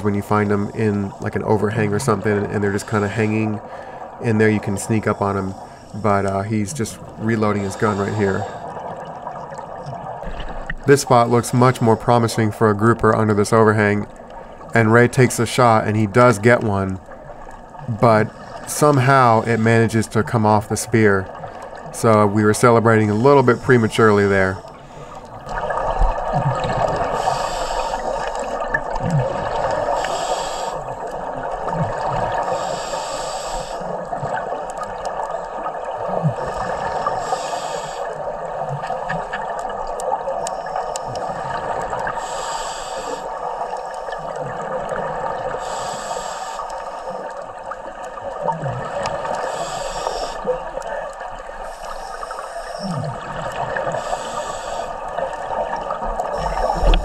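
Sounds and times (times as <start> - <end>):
low gurgles: 0.0 - 57.0
exhaled bubbles underwater: 16.0 - 42.4, 43.0 - 46.2, 47.0 - 57.0
regulator hiss: 27.1 - 28.6, 29.9 - 30.9, 32.5 - 34.0, 36.5 - 38.2, 42.1 - 44.1, 45.6 - 47.2, 49.3 - 50.5, 51.6 - 53.0, 53.8 - 55.1.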